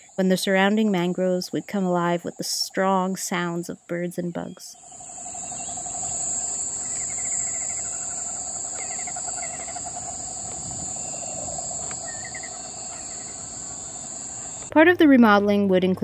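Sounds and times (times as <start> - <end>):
lower pulsing insect trill: 0.0 - 14.7
high-pitched insect shrill: 4.8 - 14.7.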